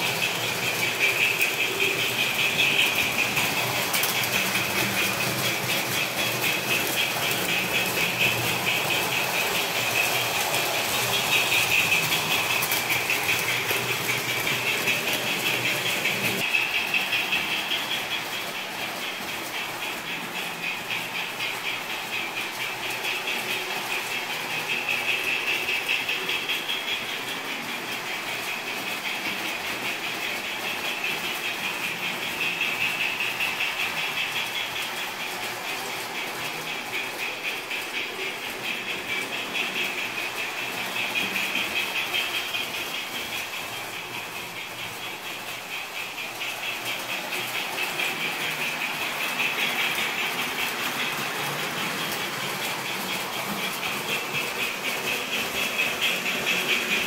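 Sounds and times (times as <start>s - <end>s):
model train motors whirring: 0.0s - 57.0s
wheels clicking over track: 0.0s - 57.0s.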